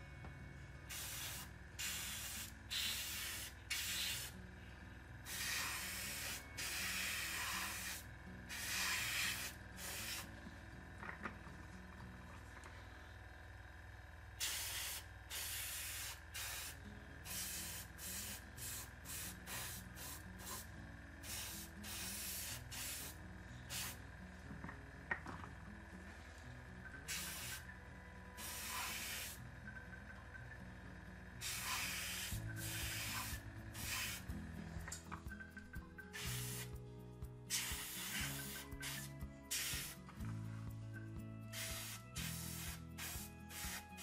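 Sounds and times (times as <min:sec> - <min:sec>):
airbrush spraying hiss: 0:00.9 - 0:04.4, 0:05.2 - 0:10.3, 0:14.4 - 0:24.0, 0:27.1 - 0:27.7, 0:28.4 - 0:29.4, 0:31.4 - 0:34.4, 0:36.1 - 0:36.8, 0:37.5 - 0:40.0, 0:41.5 - 0:44.0.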